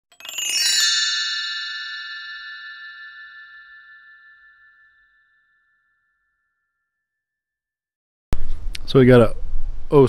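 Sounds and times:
bell-like chime ringing: 0.1 - 7.4.

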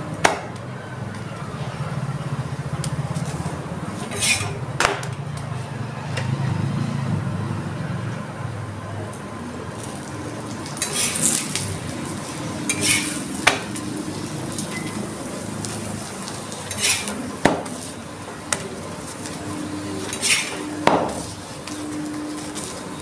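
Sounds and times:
metal spatula scraping: 4.0 - 4.6, 10.6 - 15.4, 16.2 - 18.0, 19.0 - 22.8
faint oil sizzle: 9.3 - 23.0.

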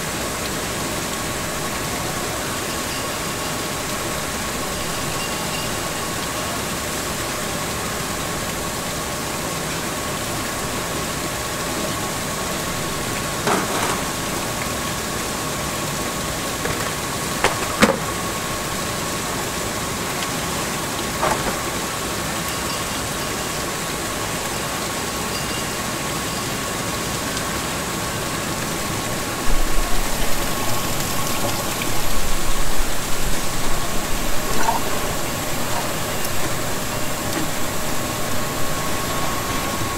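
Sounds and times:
machinery and ventilation hum: 0.0 - 39.9
high whine: 28.8 - 39.9.

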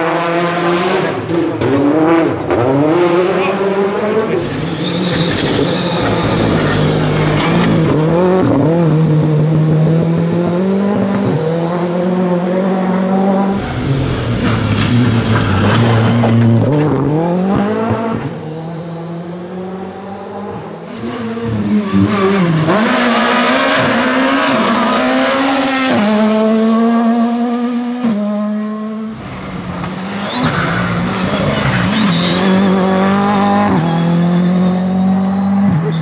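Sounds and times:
rally car engines revving: 0.0 - 36.0.

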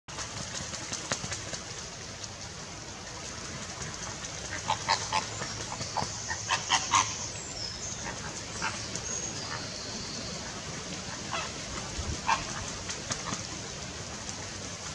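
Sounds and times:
flamingos splashing in water: 0.1 - 7.2, 10.5 - 14.9
birds honking: 6.0 - 7.3.

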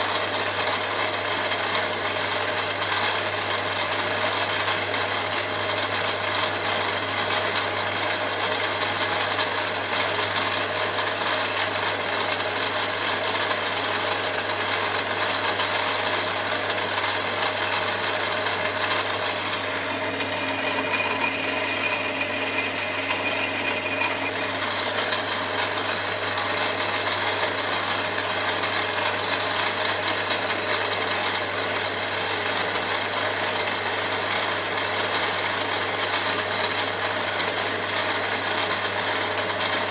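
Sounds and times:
milling machine running: 0.0 - 39.9
drill bit cutting aluminium: 15.0 - 28.2.

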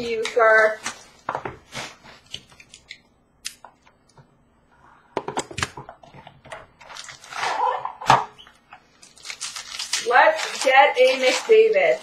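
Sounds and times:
cardboard rustling and scraping: 0.1 - 2.3, 10.1 - 12.0.

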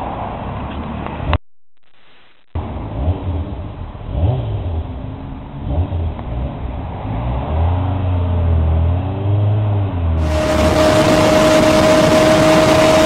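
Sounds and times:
motorcycle engine idling and revving: 2.6 - 13.0.

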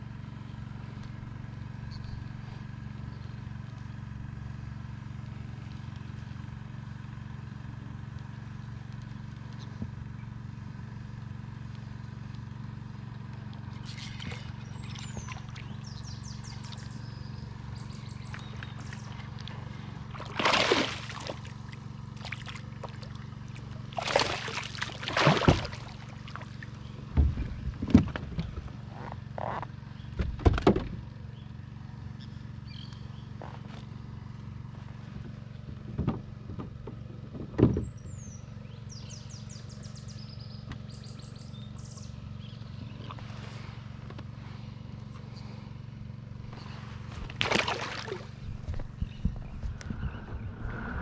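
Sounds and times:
steady low hum: 0.0 - 31.5, 41.4 - 51.0
fish flopping knocks and thumps: 18.3 - 28.8, 35.8 - 37.9, 46.5 - 50.4
fish splashing at surface: 20.0 - 26.7, 47.1 - 48.7.

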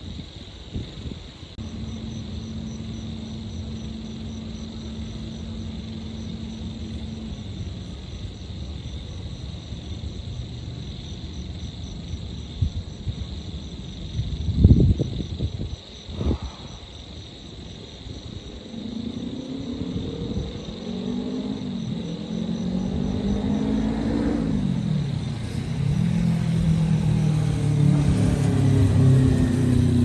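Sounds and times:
distant city traffic rumble: 0.0 - 30.0
insects chirping: 0.0 - 30.0
low steady hum: 1.5 - 15.0.

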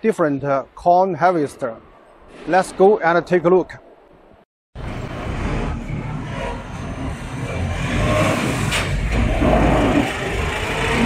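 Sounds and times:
harvester engine running: 4.8 - 11.0
rising whine: 4.8 - 11.0.

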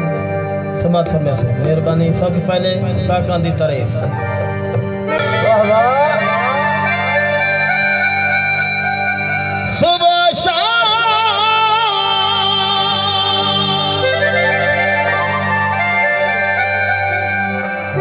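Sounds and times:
harmonium reedy tones: 0.0 - 18.0
wavering held melody note: 4.0 - 9.7.

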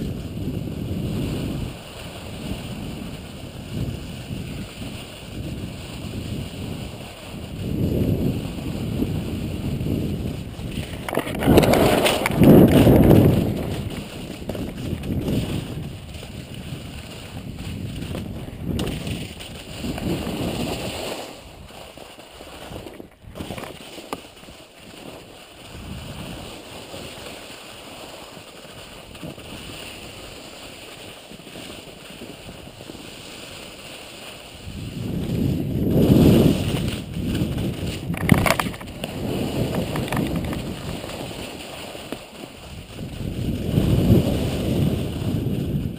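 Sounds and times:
wind buffeting microphone: 0.0 - 21.8, 25.6 - 26.5, 34.5 - 41.7, 42.4 - 45.9
skis sliding over snow: 0.0 - 45.9.

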